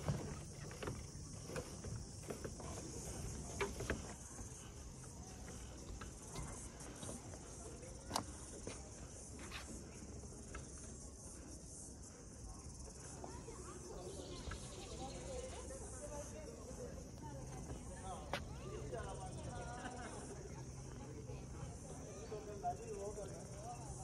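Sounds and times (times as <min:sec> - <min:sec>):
stroller wheels on wooden slats: 0:00.0 - 0:11.5
high-pitched insect chorus: 0:00.0 - 0:24.0.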